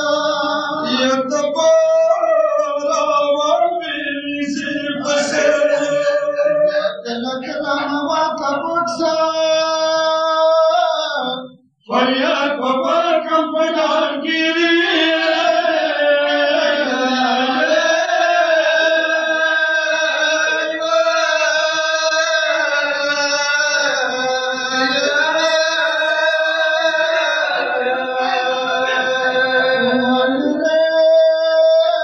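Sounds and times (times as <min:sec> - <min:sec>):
man chanting a lament: 0:00.0 - 0:32.0.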